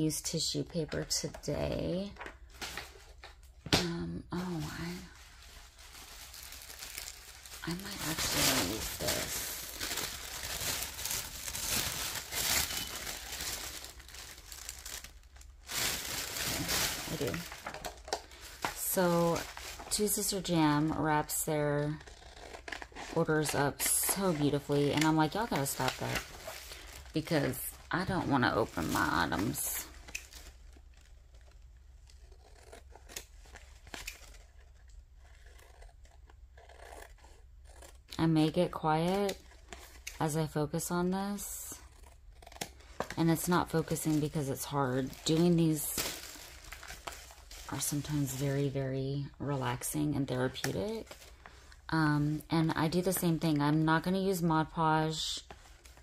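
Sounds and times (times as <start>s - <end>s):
tissue paper crinkling: 4.3s - 20.5s, 22.1s - 38.0s, 42.8s - 48.8s
paper rustling: 4.4s - 18.8s.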